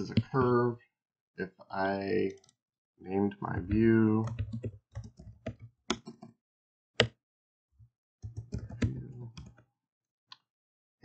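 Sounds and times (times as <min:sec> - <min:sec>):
keyboard typing: 0:03.5 - 0:06.4, 0:08.2 - 0:09.6.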